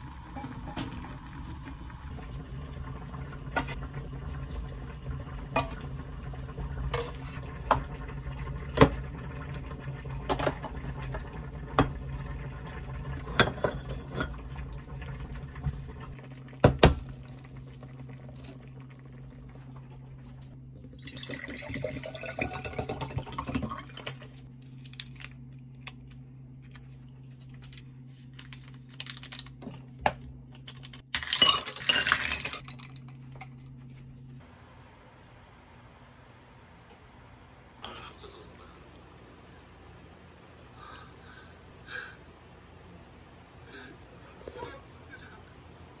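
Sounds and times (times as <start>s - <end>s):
water pouring into a glass: 20.8s - 24.0s.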